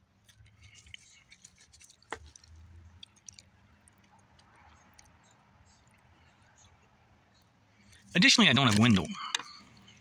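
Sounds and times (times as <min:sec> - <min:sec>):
small clicks and rustles: 0:00.2 - 0:06.7.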